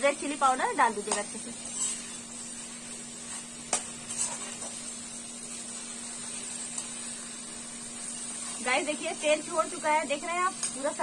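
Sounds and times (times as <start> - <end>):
food sizzling in oil: 0.0 - 11.0.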